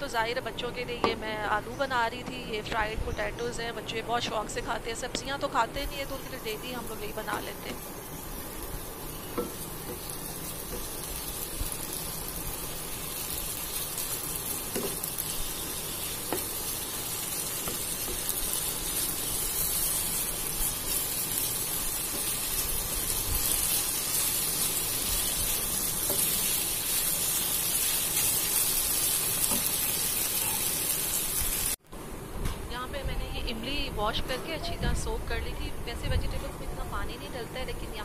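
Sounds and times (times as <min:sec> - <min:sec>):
potatoes sizzling in oil: 0:04.4 - 0:31.8.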